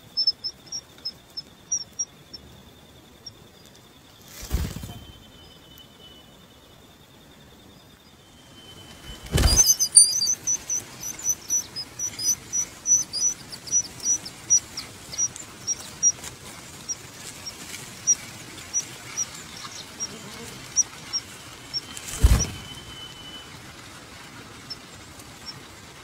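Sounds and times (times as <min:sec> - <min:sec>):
bird nestlings cheeping: 0:08.6 - 0:23.4.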